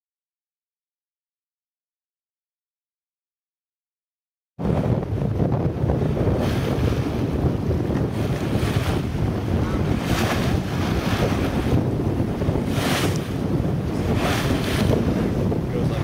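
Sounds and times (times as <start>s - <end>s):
waves washing past hull: 4.6s - 16.0s
wind buffeting microphone: 4.6s - 16.0s.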